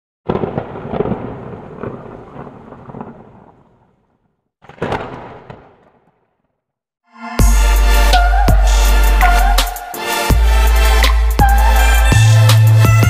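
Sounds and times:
thunder-like booms: 0.3 - 6.3.

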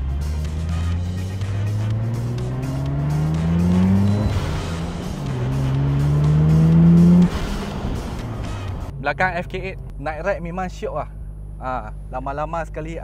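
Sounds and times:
rotary engine accelerating: 0.0 - 10.1.

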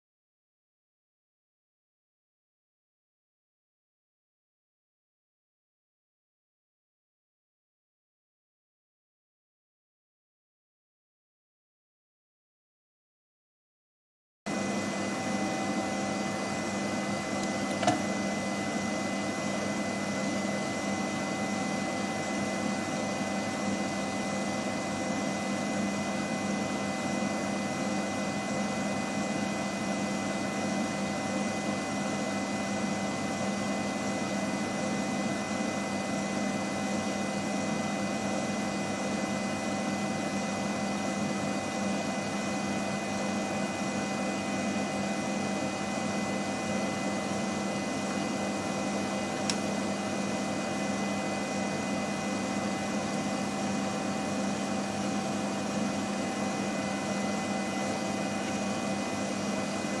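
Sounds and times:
machine hum and hiss: 14.5 - 60.0
short click: 49.4 - 49.6.

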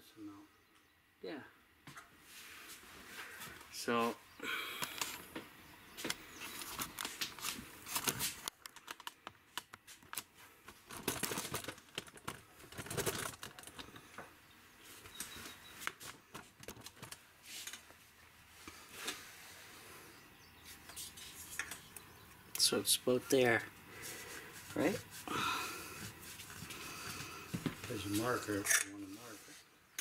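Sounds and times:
hand handling clicks and rustling: 6.0 - 14.3, 15.0 - 18.0.

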